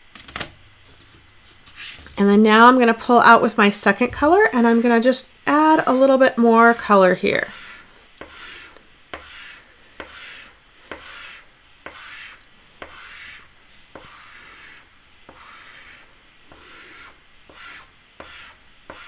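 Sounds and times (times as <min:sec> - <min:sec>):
pastel scratching on paper: 0:04.4 - 0:05.0, 0:05.7 - 0:19.0.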